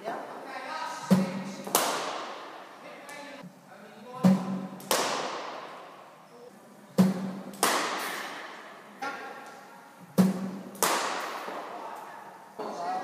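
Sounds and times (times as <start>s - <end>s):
cricket ball impacts with echo: 10.2s - 11.7s.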